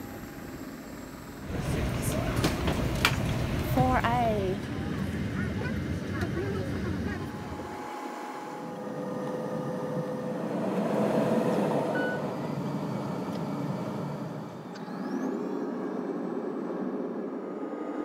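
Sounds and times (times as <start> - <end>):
jet engine drone in cabin: 0.0 - 18.0
brief rising whine: 7.1 - 18.0.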